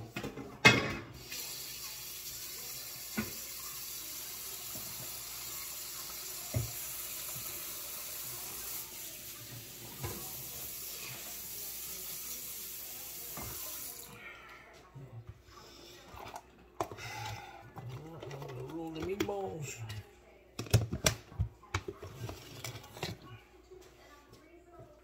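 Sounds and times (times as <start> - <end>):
water running into sink: 1.1 - 14.2.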